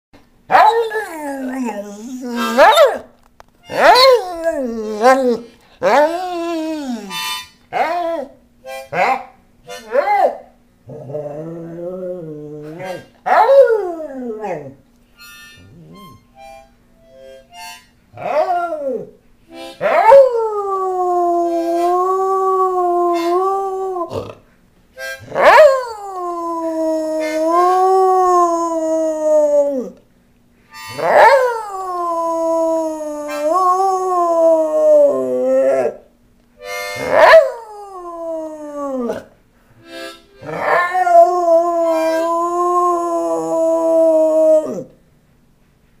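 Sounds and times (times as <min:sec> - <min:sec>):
dog howling: 0:00.5 - 0:03.0, 0:03.7 - 0:08.4, 0:19.8 - 0:24.4, 0:25.3 - 0:30.0, 0:31.0 - 0:36.0, 0:37.0 - 0:39.3, 0:40.4 - 0:44.9
harmonica note: 0:05.8 - 0:07.6, 0:08.6 - 0:08.9, 0:15.1 - 0:18.1, 0:19.5 - 0:19.9, 0:25.0 - 0:25.4, 0:30.7 - 0:31.8, 0:36.6 - 0:37.2, 0:39.8 - 0:42.6.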